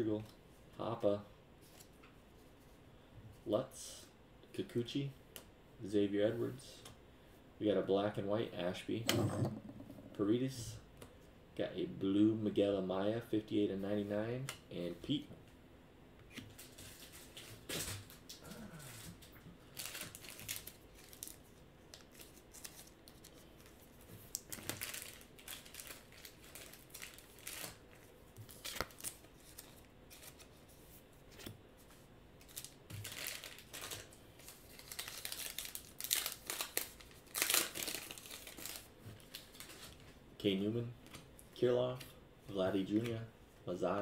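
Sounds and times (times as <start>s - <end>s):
wrapper crinkling and tearing: 19.7s - 30.5s, 32.4s - 40.0s.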